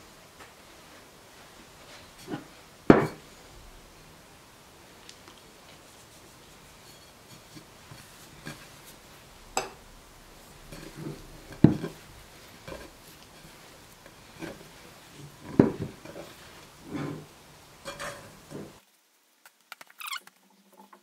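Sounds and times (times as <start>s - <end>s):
glass bowl knocking on table: 2.9s - 3.2s
dough scraped from bowl: 5.9s - 18.8s.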